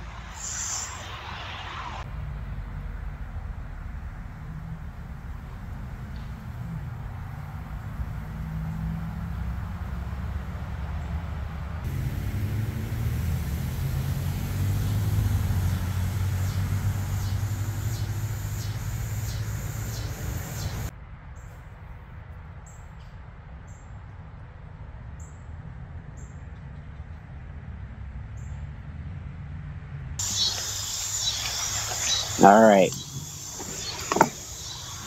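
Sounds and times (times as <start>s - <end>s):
vehicle engine hum: 0.0s - 20.9s, 26.7s - 35.0s
bird chirping: 11.9s - 20.9s, 30.2s - 35.0s.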